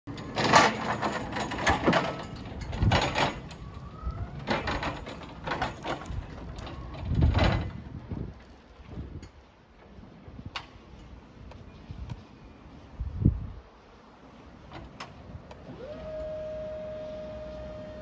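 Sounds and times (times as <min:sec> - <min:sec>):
electric pallet stacker driving: 0:00.1 - 0:07.8, 0:15.5 - 0:18.0
faint rising whine: 0:03.3 - 0:04.8, 0:15.6 - 0:18.0.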